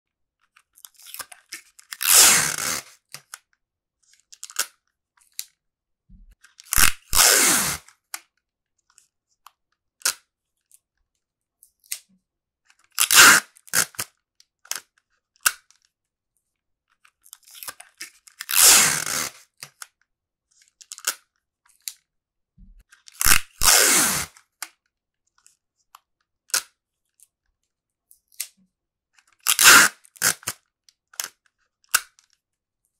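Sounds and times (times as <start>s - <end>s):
adhesive tape tearing off roll: 1.9s - 3.0s, 6.7s - 7.9s, 13.0s - 14.1s, 18.4s - 19.4s, 23.2s - 24.4s, 29.4s - 30.6s.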